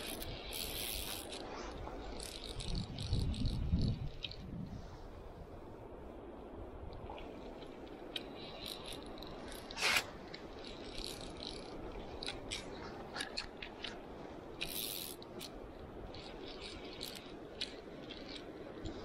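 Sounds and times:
fishing reel clicking: 0.0s - 4.4s, 8.1s - 13.9s, 14.6s - 18.9s.

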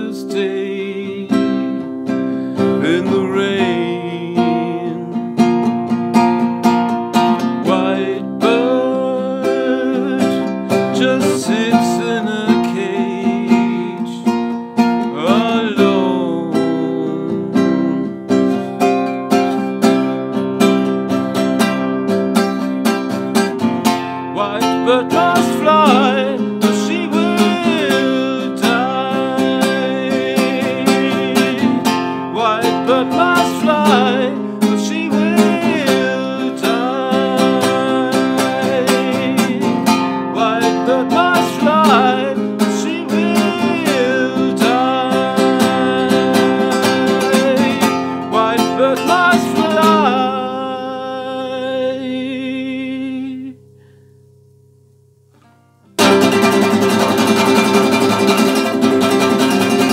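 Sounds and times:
classical guitar strummed chords: 0.0s - 59.9s
man singing held notes: 2.7s - 5.3s, 24.3s - 53.9s.

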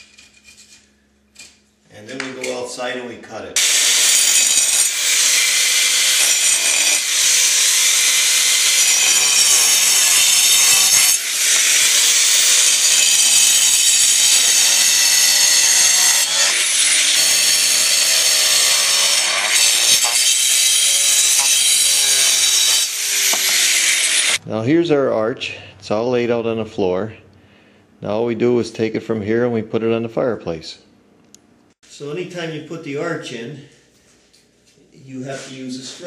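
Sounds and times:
angle grinder cutting stone: 3.6s - 24.4s.

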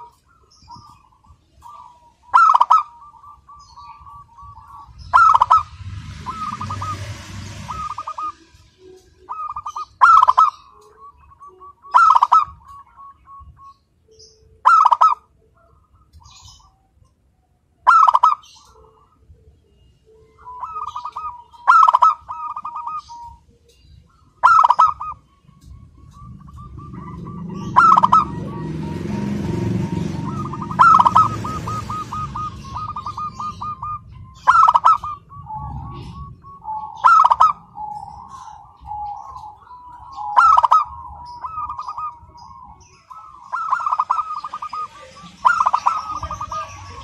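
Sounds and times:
dove cooing: 0.0s - 13.4s, 14.6s - 16.7s, 20.3s - 23.4s, 24.1s - 47.0s
low rumbling noise: 3.2s - 9.8s, 24.9s - 47.0s.

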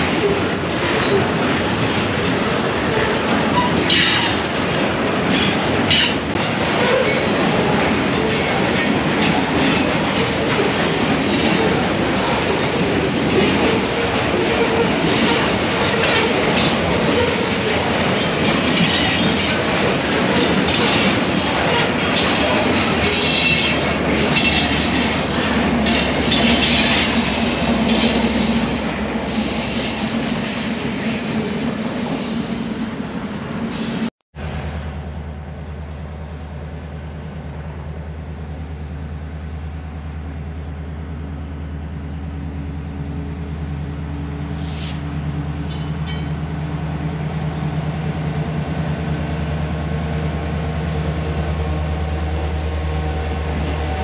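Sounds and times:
train wheels rumbling on rails: 0.0s - 54.0s
train wheels squealing: 3.5s - 6.2s, 20.4s - 25.0s.

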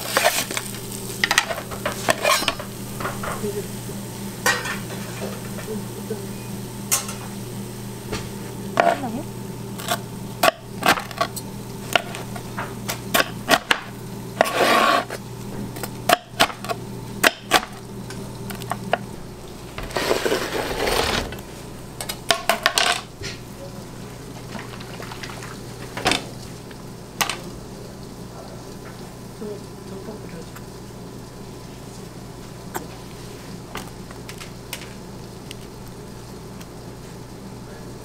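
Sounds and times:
pizza scraping off peel: 0.0s - 0.7s, 2.0s - 2.5s, 14.4s - 15.2s, 19.8s - 21.4s
kitchen equipment hum: 0.0s - 38.0s.

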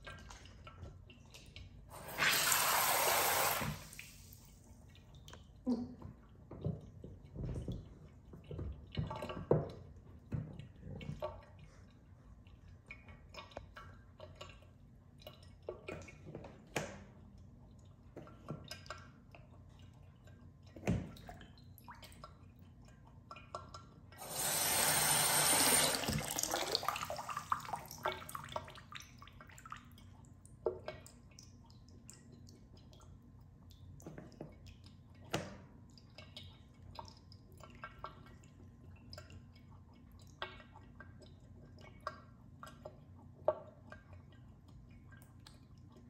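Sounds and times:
bathtub faucet running: 0.0s - 5.2s, 24.0s - 29.6s
bath water splashing: 24.2s - 29.6s.

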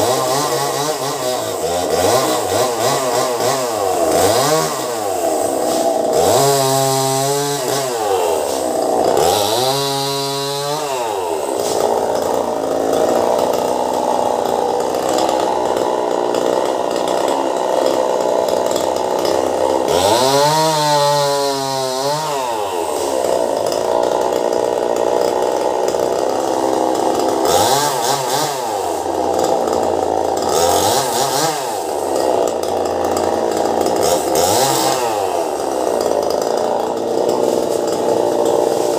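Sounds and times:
chainsaw cutting: 0.0s - 38.9s.

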